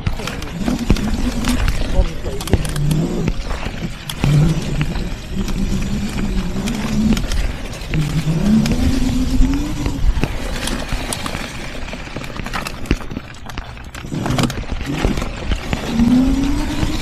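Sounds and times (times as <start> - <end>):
electric motor whining: 0.0 - 11.3, 14.0 - 17.0.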